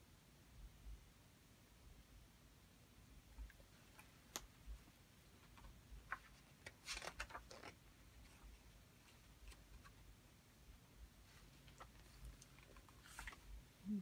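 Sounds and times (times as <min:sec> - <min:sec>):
soft clicks of book handled: 0:03.4 - 0:04.8
book page turning: 0:05.5 - 0:08.4, 0:11.6 - 0:13.5.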